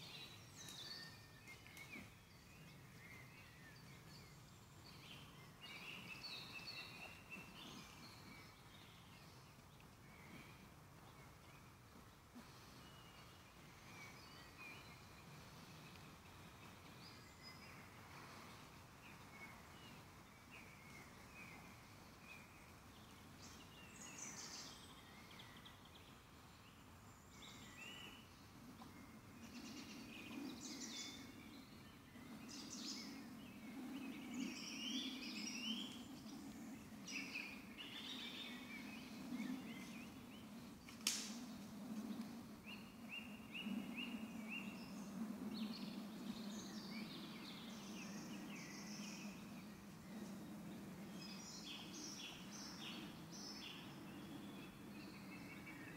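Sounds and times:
songbirds singing: 0.0 - 55.9
sharp snap: 40.9 - 41.4.

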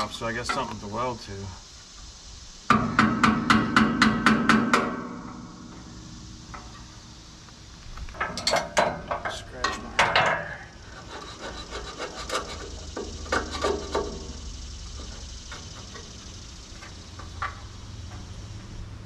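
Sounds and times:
hand tool scraping paint off metal: 8.2 - 14.4.

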